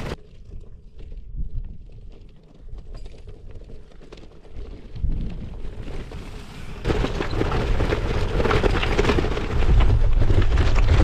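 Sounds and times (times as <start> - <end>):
bike tyres crunching over stones: 0.0 - 11.0
wind buffeting microphone: 0.0 - 11.0.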